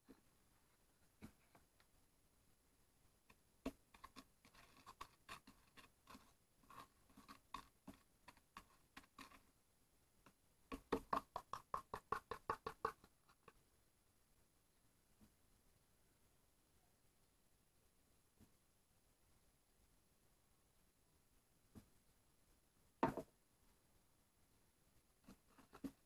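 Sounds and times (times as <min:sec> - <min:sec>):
teaspoon stirring in plastic cup: 0:03.7 - 0:09.5, 0:10.7 - 0:13.5.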